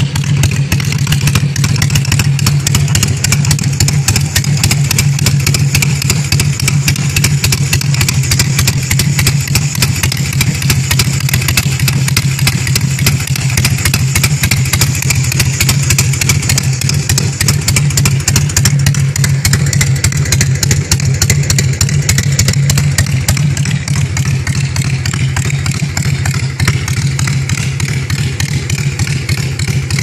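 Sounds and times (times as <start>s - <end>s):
motorcycle engine idling: 0.0s - 30.0s.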